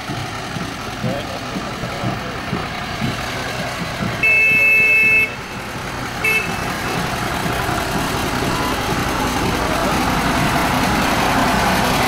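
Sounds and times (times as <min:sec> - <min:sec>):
diesel engine running: 0:00.0 - 0:12.0
locomotive horn: 0:04.2 - 0:07.1.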